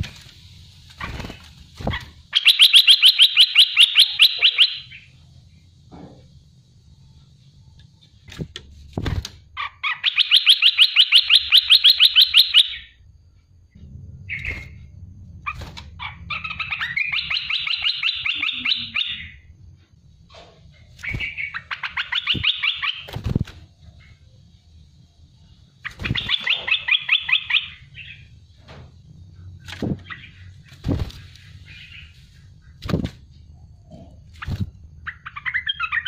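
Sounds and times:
bird calling in fast repeated notes: 0:01.9 - 0:05.2, 0:09.6 - 0:13.0, 0:15.4 - 0:19.4, 0:21.0 - 0:23.2, 0:25.7 - 0:28.3.

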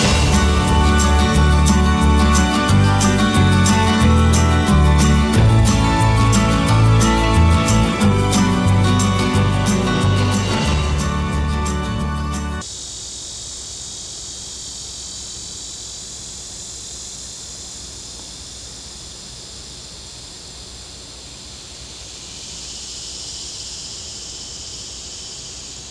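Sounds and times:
background music: 0:00.0 - 0:12.6
insects droning: 0:00.0 - 0:25.9.

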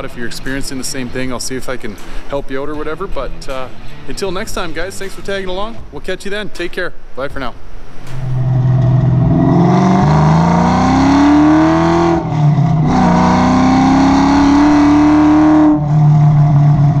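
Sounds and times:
car engine accelerating: 0:08.1 - 0:17.0.

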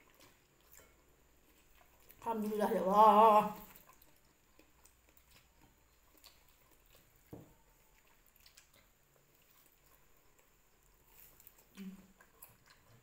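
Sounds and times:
eating mouth noises: 0:07.9 - 0:13.0.

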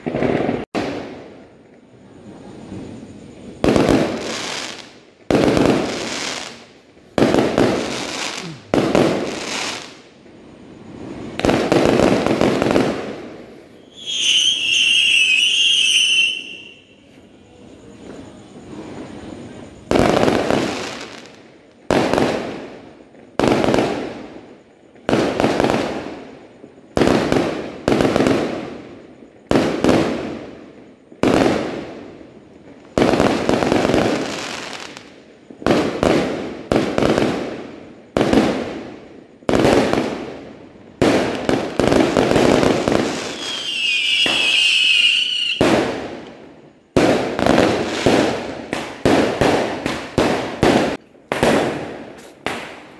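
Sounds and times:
fireworks bursting with echo: 0:00.0 - 0:52.9
high wavering whistle: 0:13.8 - 0:17.0, 0:43.2 - 0:45.6.

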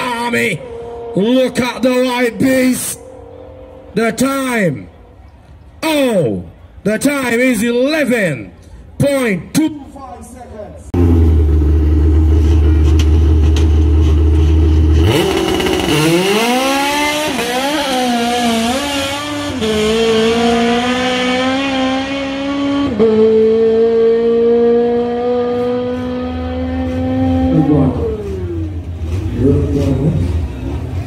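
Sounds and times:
loud steady drone: 0:00.0 - 0:06.7, 0:11.0 - 0:23.0
drag car engine revving: 0:11.0 - 0:31.0.

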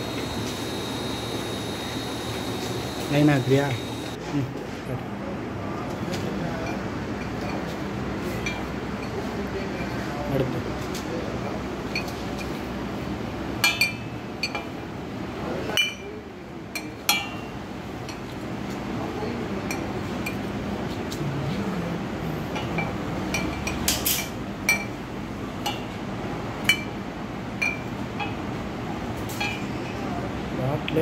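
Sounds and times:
low machine hum: 0:00.0 - 0:04.2
glass bottles clinking: 0:27.6 - 0:28.4, 0:29.4 - 0:29.8.

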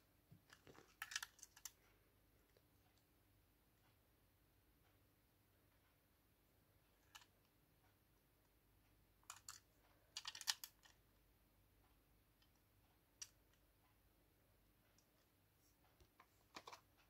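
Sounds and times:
fingers clicking toy bus: 0:10.2 - 0:11.0.

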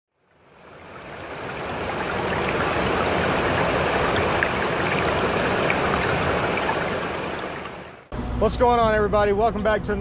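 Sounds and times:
water rushing: 0:00.2 - 0:08.1.

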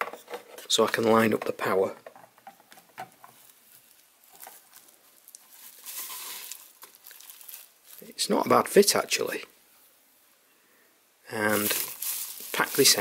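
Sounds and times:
bubble-wrap rustle: 0:03.2 - 0:08.6, 0:11.4 - 0:13.0.

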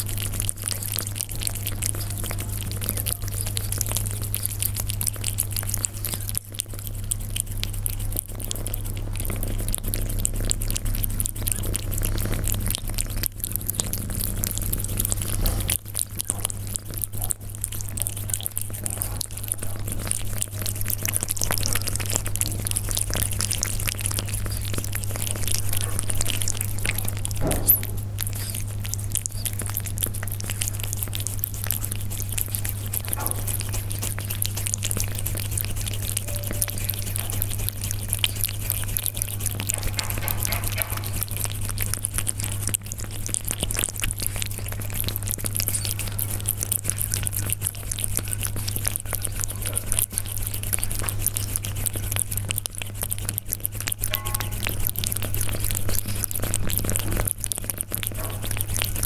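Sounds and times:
cat chewing and crunching: 0:00.0 - 0:59.0
steady low hum: 0:00.0 - 0:59.0.

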